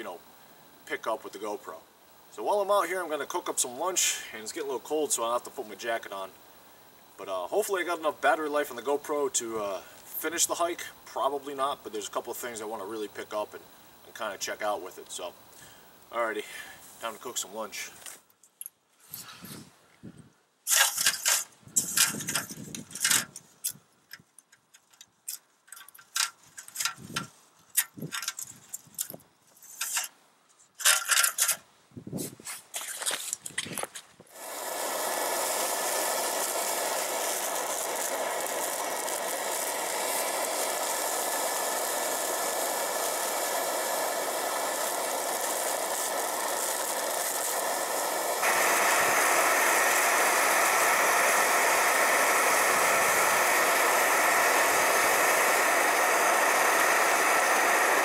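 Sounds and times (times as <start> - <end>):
camp stove burning with loud hiss: 0.0 - 18.4, 19.0 - 24.0, 25.7 - 30.2, 30.8 - 58.0.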